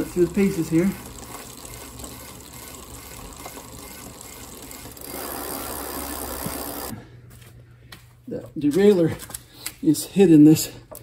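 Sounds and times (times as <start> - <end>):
bicycle chain and wheel whirring: 0.0 - 7.0.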